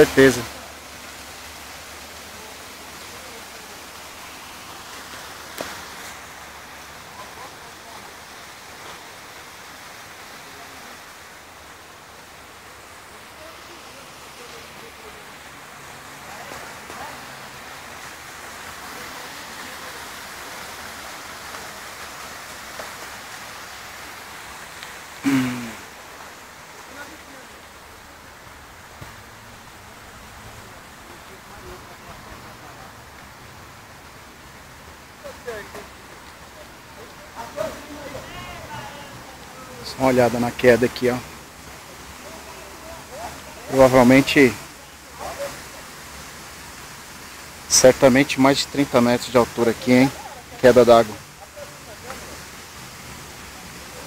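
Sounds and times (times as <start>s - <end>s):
waterfall rushing: 0.0s - 54.0s.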